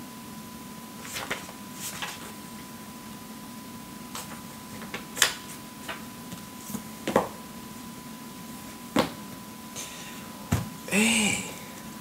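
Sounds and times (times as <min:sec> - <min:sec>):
books tapping and knocking: 0:04.2 - 0:07.4.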